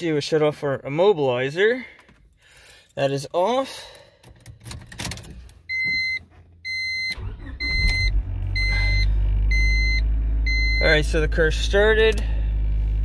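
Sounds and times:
electronic beeps: 0:05.7 - 0:11.0
car engine starting and idling: 0:06.3 - 0:13.0.

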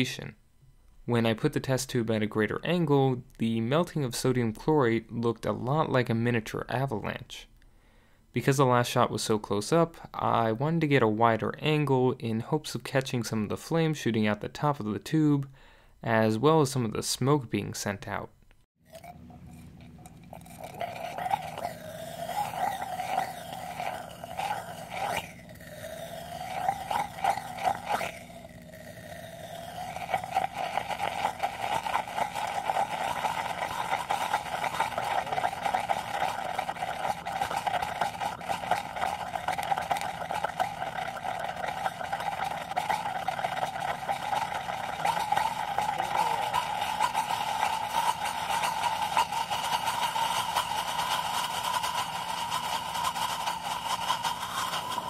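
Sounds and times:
chemical reaction screaming hiss: 0:20.4 - 0:55.0.

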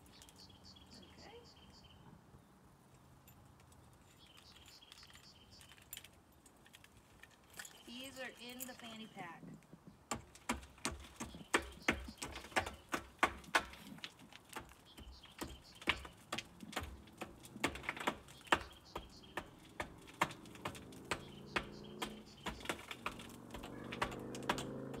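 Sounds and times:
taps on corrugated steel pipe: 0:10.1 - 0:25.0.

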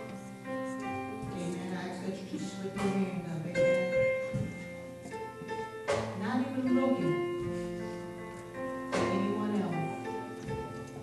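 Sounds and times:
held keyboard chords: 0:00.0 - 0:11.0.

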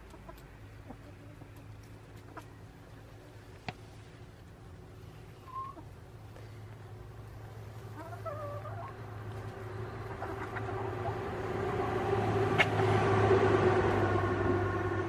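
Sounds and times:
chicken call: 0:05.4 - 0:05.9
passing vehicle engine drone: 0:08.8 - 0:15.0.

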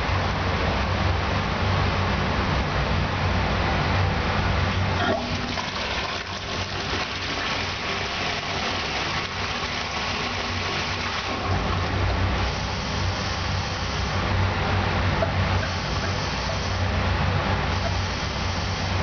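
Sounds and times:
toilet flushing: 0:04.9 - 0:12.2.

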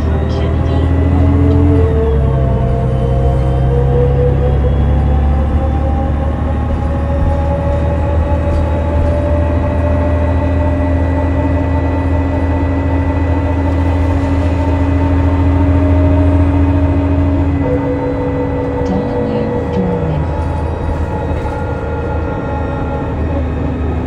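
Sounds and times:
bus diesel engine running: 0:00.0 - 0:24.0.

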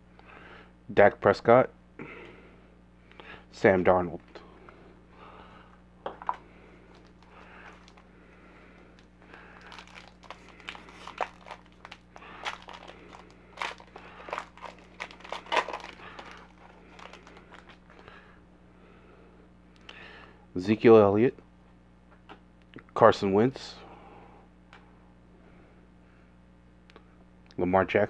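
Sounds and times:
foil pack crinkling and ripping: 0:06.9 - 0:08.1, 0:09.0 - 0:18.0.

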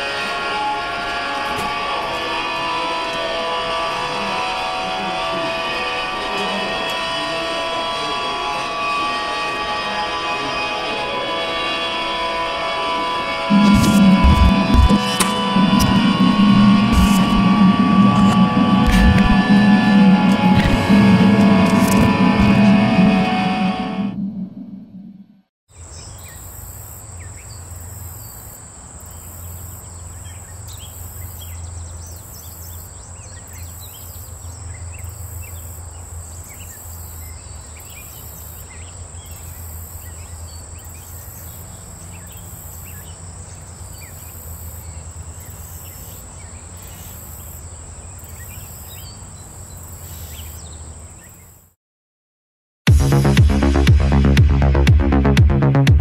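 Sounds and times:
insect chorus droning: 0:00.0 - 0:23.9, 0:25.7 - 0:51.7
low steady rumble: 0:13.5 - 0:25.3
bird chirps: 0:48.2 - 0:51.6.

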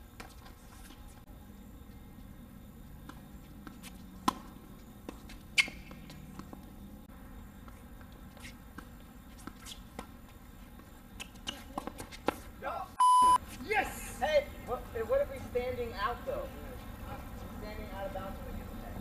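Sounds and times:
tennis ball hit by racket: 0:03.0 - 0:06.6
tennis ball bouncing on court: 0:03.0 - 0:06.8, 0:07.6 - 0:10.3.

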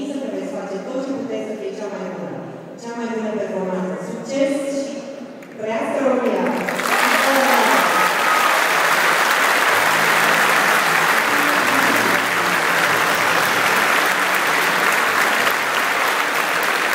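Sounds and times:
crowd applauding: 0:06.4 - 0:16.9.

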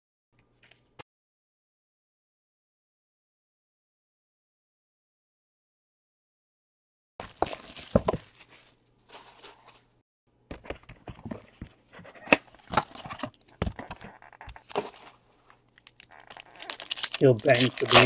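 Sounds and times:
crinkling: 0:07.2 - 0:09.9, 0:11.0 - 0:18.0
trading cards being handled: 0:07.2 - 0:09.9, 0:10.5 - 0:18.0.

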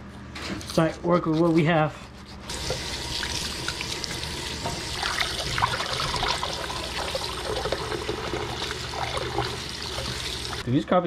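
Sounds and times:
water splashing in bowl: 0:02.5 - 0:10.6.

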